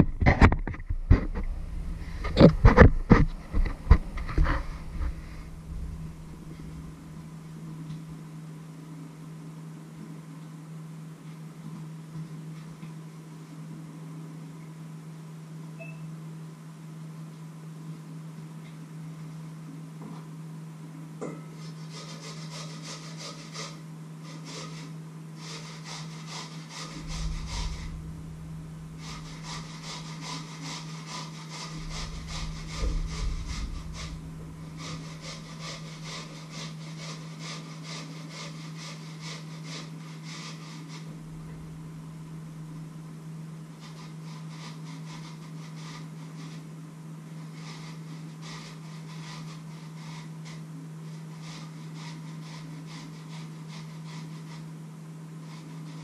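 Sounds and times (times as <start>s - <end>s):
dull bumps: 0.0s - 7.4s, 26.9s - 30.3s, 31.6s - 36.4s
scraping over metal bowl: 0.0s - 7.4s, 21.2s - 42.0s
steady low hum: 0.0s - 56.0s.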